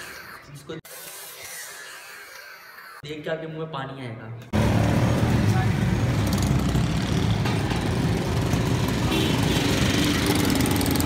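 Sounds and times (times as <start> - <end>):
auto-rickshaw engine: 4.6 - 11.0
busy street traffic: 4.6 - 11.0.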